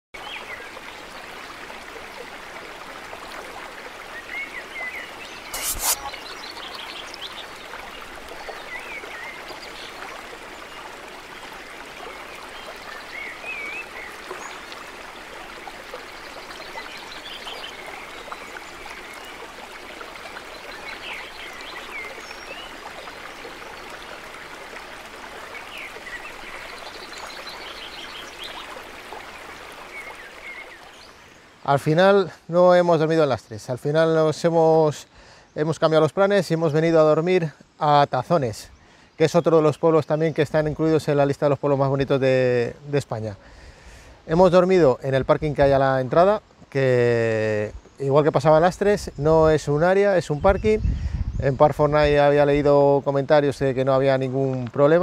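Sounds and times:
birds singing: 0.2s - 35.9s, 36.5s - 55.0s
stream and waterfall running: 0.2s - 55.0s.

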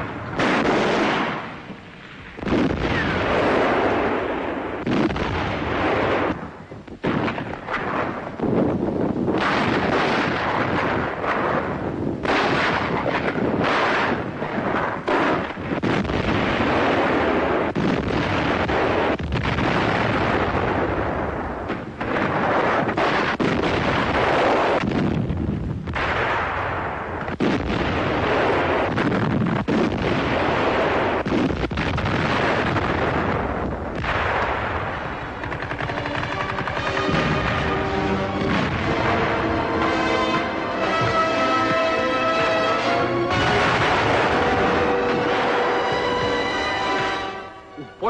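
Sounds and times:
gunfire: 0.0s - 1.8s, 2.4s - 6.4s, 7.0s - 8.4s, 9.3s - 25.3s, 25.9s - 47.6s
artillery explosions: 0.0s - 48.0s.

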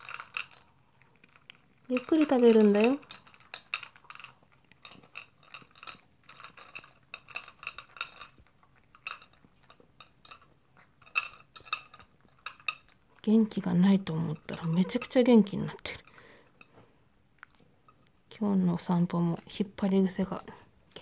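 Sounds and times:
dog chewing: 0.0s - 18.3s
dog food clinking against bowl: 13.6s - 15.3s.

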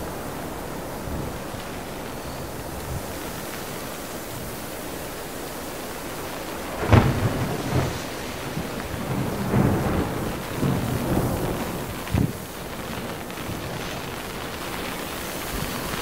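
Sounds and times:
rain hiss: 0.0s - 16.0s
thunder rumbling: 6.6s - 16.0s.

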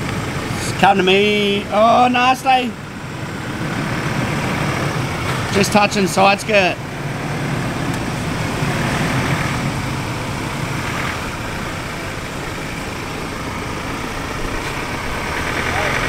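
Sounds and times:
truck engine at low revs: 0.0s - 16.0s.

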